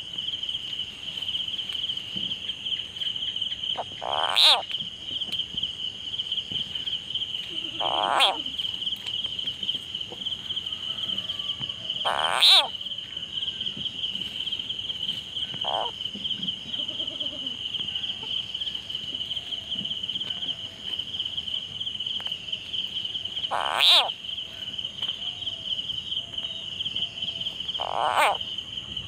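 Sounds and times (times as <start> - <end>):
cricket chorus: 0.0 - 29.0
frog distress cries: 3.7 - 4.7, 7.5 - 8.6, 10.9 - 13.0, 15.6 - 16.0, 16.7 - 18.5, 23.4 - 24.2, 27.3 - 28.5.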